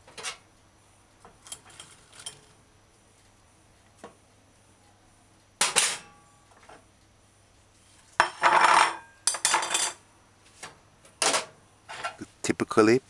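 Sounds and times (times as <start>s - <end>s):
dishes and utensils clattering: 8.2s - 10.0s, 11.2s - 12.2s.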